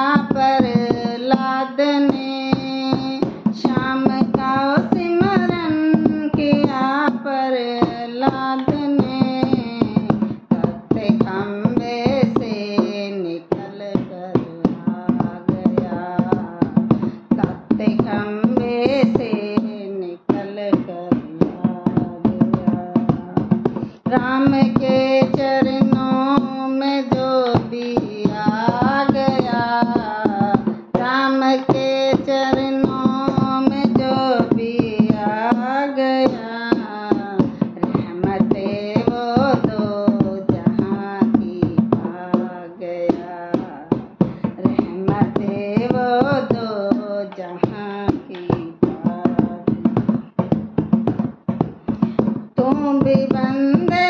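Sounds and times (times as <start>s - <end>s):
hand drum beating: 0.0s - 54.0s
woman singing devotional song: 0.0s - 54.0s.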